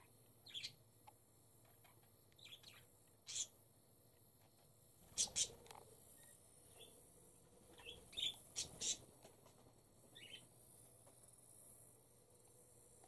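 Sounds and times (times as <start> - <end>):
parrots chirping: 0.4 - 0.8, 2.4 - 3.5, 5.1 - 5.6, 7.8 - 9.0, 10.1 - 10.5.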